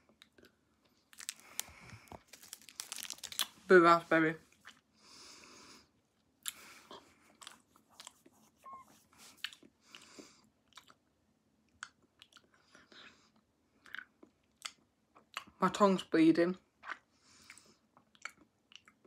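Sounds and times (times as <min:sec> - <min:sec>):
soft breaths: 0:00.8 - 0:03.0, 0:04.9 - 0:10.5.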